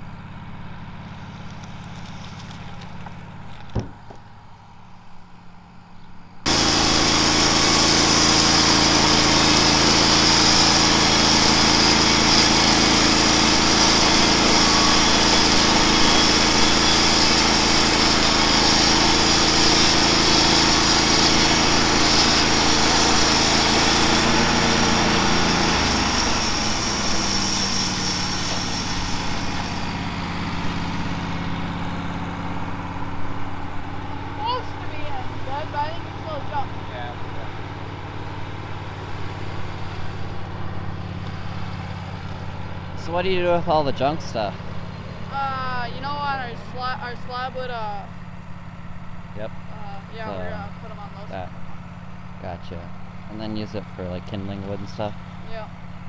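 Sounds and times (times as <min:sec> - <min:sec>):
sawmill engine running: 0:00.0 - 0:56.0
band blade cutting wood hiss: 0:06.5 - 0:30.2.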